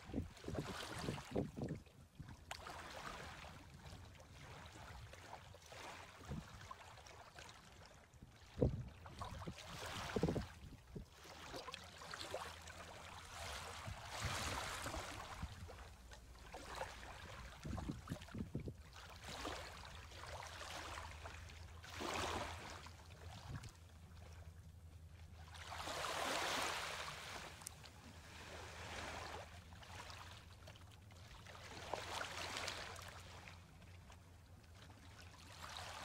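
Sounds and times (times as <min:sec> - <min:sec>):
small waves lapping on shore: 0:00.0 - 0:36.0
wavelet splashes: 0:08.4 - 0:24.4, 0:25.4 - 0:34.0.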